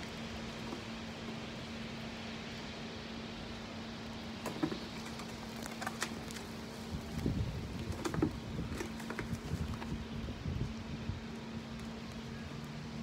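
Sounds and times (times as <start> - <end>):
low hum and hiss: 0.0 - 13.0
pole apple picker rustling branches: 4.1 - 13.0.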